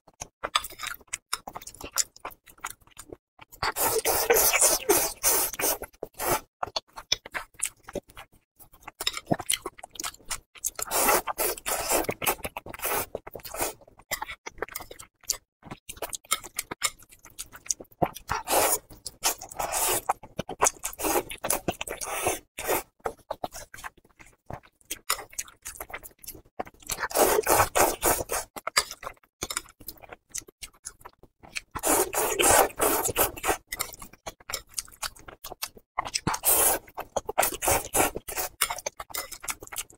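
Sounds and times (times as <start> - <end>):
wet chewing and lip-smacking: 0.1 - 39.9
noodle slurping: 3.6 - 6.5, 10.8 - 13.8, 18.3 - 22.9, 26.9 - 28.5, 31.8 - 33.9, 36.3 - 38.7.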